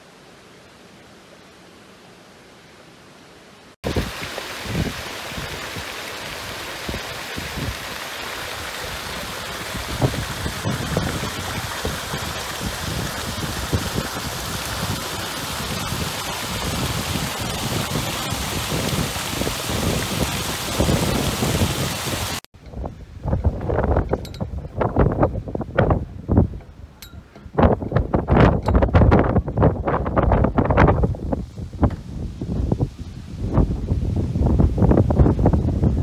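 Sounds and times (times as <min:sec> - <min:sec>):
water pouring over a weir: 0:03.8 - 0:22.5.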